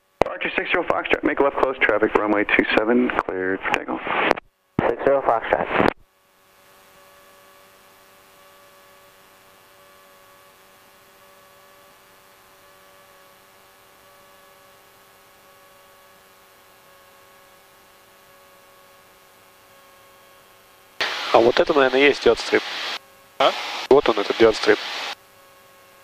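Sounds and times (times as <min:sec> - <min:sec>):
steady tones: 0:21.0 - 0:25.2.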